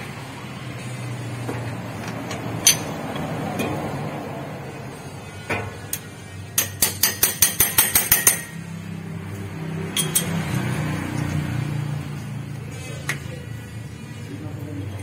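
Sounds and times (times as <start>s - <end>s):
ratchet wrench clicking: 9.9s - 10.4s.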